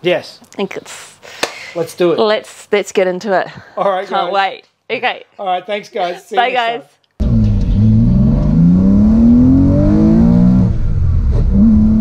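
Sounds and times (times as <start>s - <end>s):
car engine accelerating: 7.2s - 12.0s.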